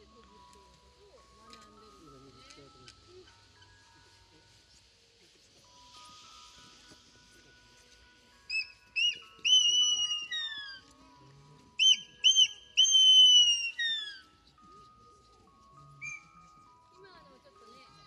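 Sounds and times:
eagle whistling call: 0:08.5 - 0:10.9, 0:11.8 - 0:14.3, 0:16.0 - 0:16.6.

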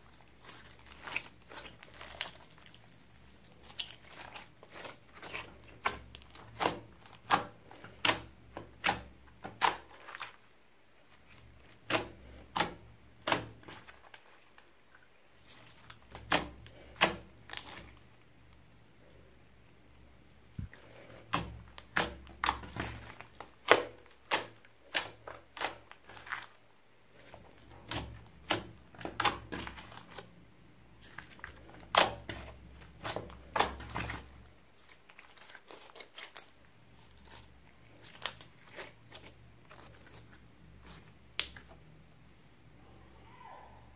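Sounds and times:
slime popping as kneaded: 0:31.0 - 0:40.2, 0:40.8 - 0:41.8.

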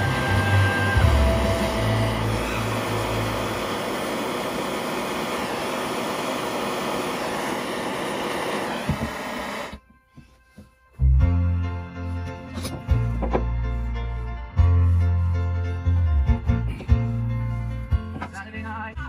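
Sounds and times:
torch flame hissing: 0:00.0 - 0:09.8
soft piano background music: 0:10.8 - 0:19.0.

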